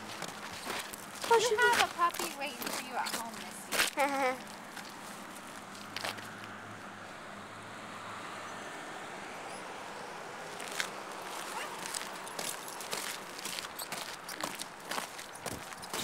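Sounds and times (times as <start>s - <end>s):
footsteps on gravel: 0.0s - 6.6s, 10.5s - 16.0s.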